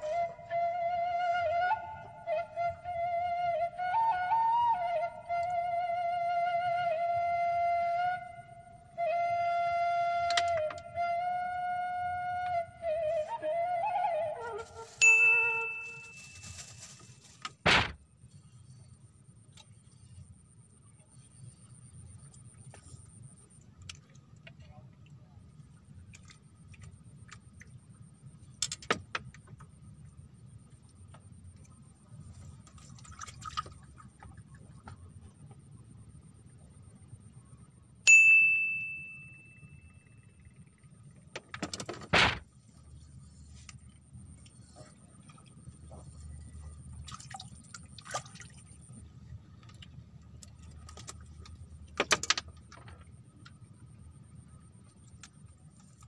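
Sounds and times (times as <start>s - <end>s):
low steady rumble: 0.0s - 56.0s
water lapping and sloshing: 32.3s - 35.3s, 43.8s - 49.9s.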